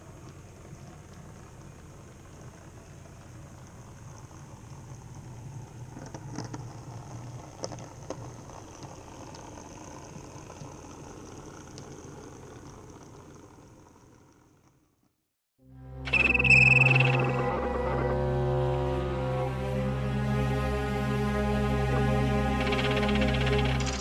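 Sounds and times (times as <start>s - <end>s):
wheels clicking on rails: 0.0s - 14.8s.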